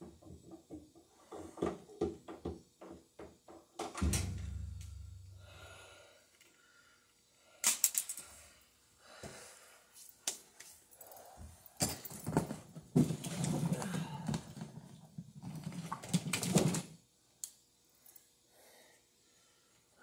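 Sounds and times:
handling parts clatter and rustling: 11.8 - 17.0.

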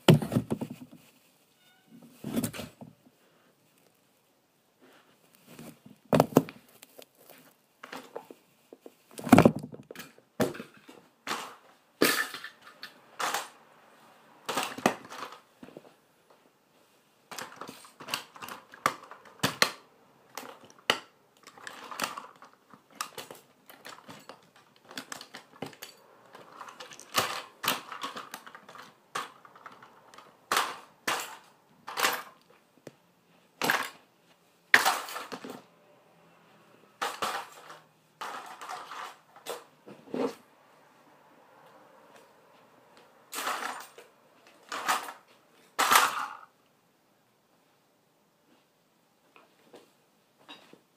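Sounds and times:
plastic toys clattering: 0.0 - 1.2, 5.4 - 13.6, 14.4 - 15.9, 17.3 - 32.6, 33.3 - 34.1, 34.7 - 35.7, 37.0 - 40.4, 43.3 - 46.6.

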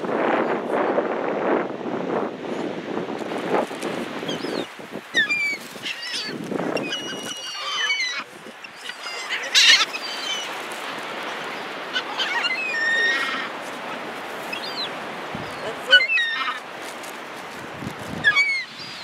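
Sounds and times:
seagulls crying and squawking: 4.2 - 16.7, 18.2 - 19.0.

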